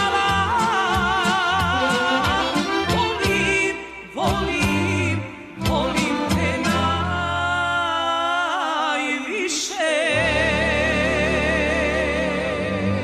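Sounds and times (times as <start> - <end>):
folk band playing: 0.0 - 7.6
woman singing with vibrato: 0.0 - 13.0.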